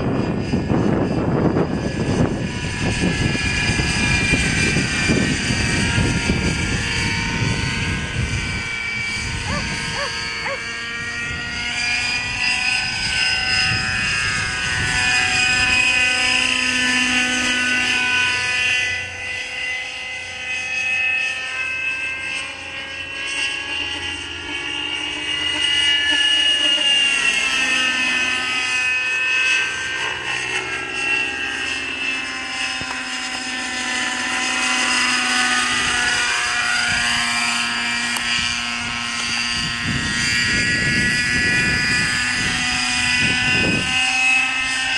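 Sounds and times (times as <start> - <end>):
model helicopter engine and rotors whining: 0.0 - 44.9.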